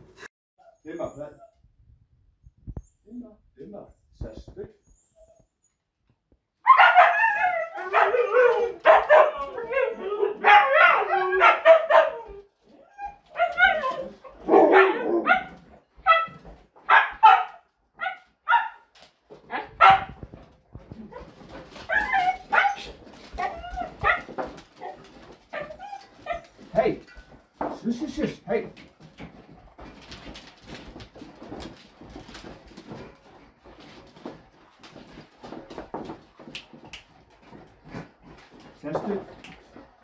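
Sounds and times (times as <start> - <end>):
dogs howling yipping and barking: 6.6 - 18.8, 21.1 - 26.6.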